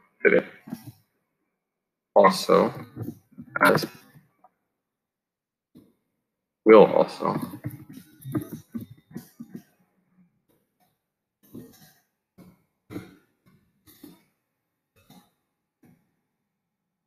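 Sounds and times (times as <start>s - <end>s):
man muttering: 0.3s - 0.8s, 2.2s - 4.0s, 6.7s - 9.6s.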